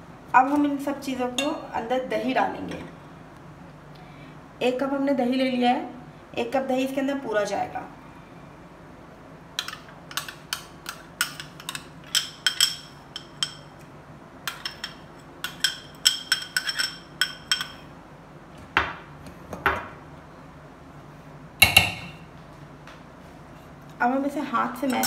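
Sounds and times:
bowl knocking on steel pot: 21.6s - 22.2s
spoon clinking on glass bowl: 21.6s - 22.2s.

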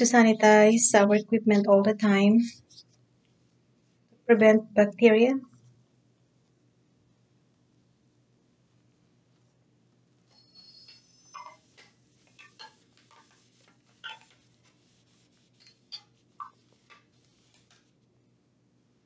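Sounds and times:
plastic crinkling and clicking: 15.6s - 17.9s.

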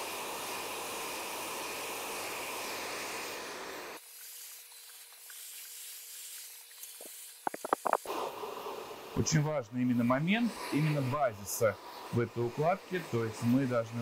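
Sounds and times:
hair dryer blowing: 0.0s - 4.0s, 7.0s - 14.0s
faint hiss: 0.0s - 14.0s.

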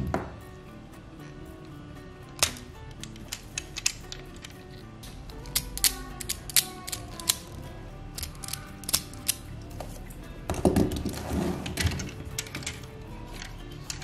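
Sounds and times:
plastic toy parts clicking: 2.3s - 9.5s, 11.8s - 14.0s.

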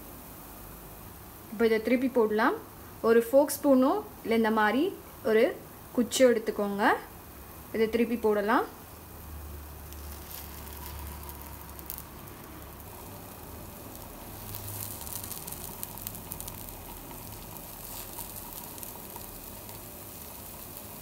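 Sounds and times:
food sizzling in a pan: 6.6s - 21.0s.

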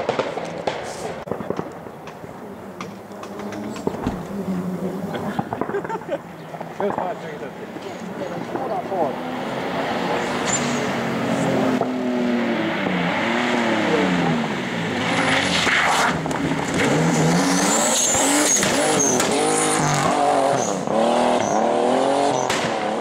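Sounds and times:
rally car engine revving: 2.3s - 23.0s
tyres squealing: 17.0s - 20.8s.

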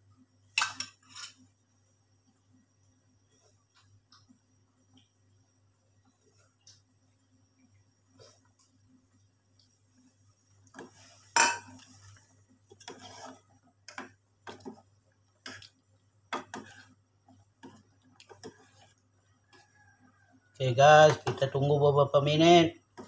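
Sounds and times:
metal pot clinking: 11.3s - 11.8s.

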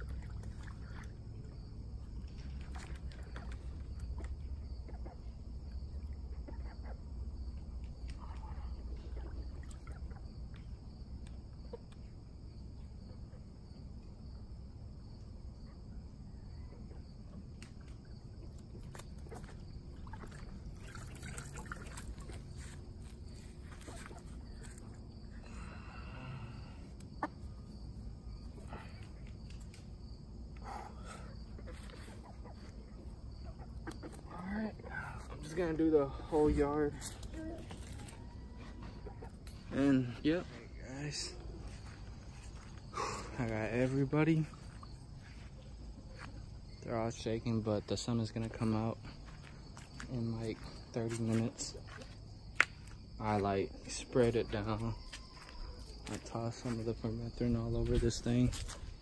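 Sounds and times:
small splashes and drips: 0.0s - 4.6s, 7.6s - 11.4s, 17.6s - 25.0s
water sloshing in a bucket: 0.0s - 4.6s, 7.9s - 10.8s, 17.7s - 25.3s.

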